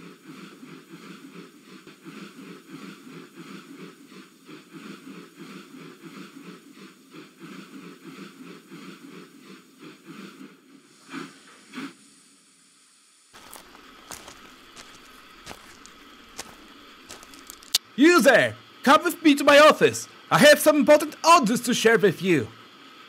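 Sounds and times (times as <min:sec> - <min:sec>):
steam locomotive chuffing: 0:00.0 - 0:10.7.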